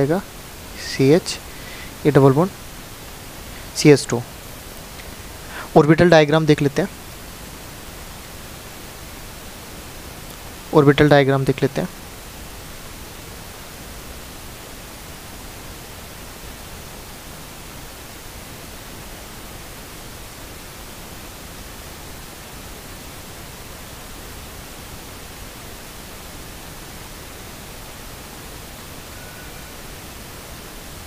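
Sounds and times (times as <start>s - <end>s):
steady background hiss: 0.0s - 31.0s.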